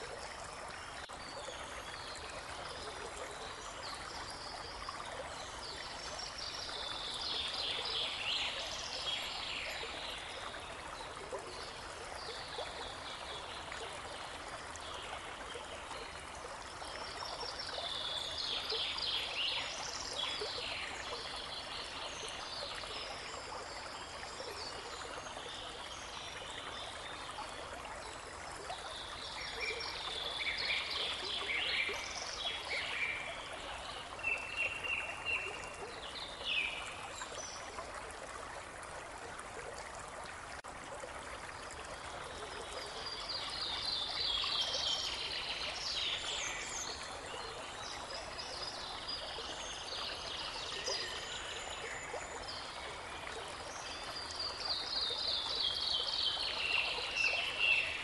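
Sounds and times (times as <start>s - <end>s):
babbling brook: 0.0s - 58.0s.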